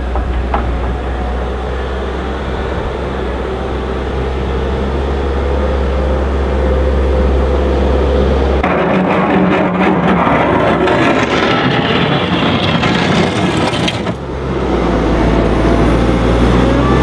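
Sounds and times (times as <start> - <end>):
diesel engine running: 0.0 - 17.0
bucket pushing snow: 9.1 - 14.2.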